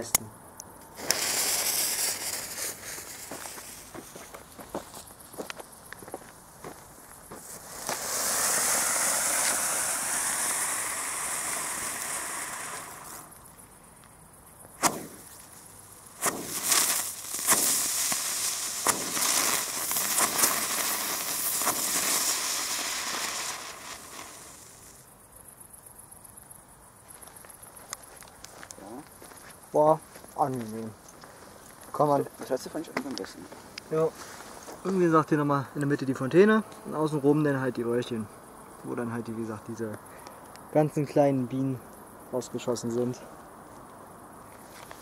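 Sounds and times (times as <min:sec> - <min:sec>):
firework fountain hissing: 0:00.9 - 0:04.8, 0:05.4 - 0:13.7, 0:14.7 - 0:25.1
sharp firework pops: 0:01.0 - 0:04.1, 0:05.4 - 0:13.5, 0:14.7 - 0:15.5, 0:16.1 - 0:25.0.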